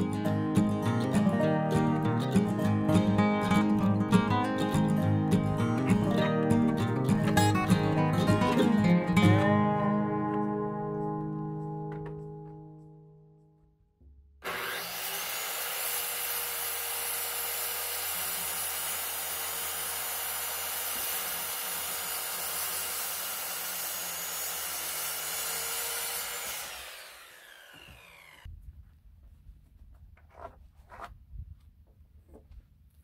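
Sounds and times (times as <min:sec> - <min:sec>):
electric power saw cutting wood: 0:14.4 - 0:28.5.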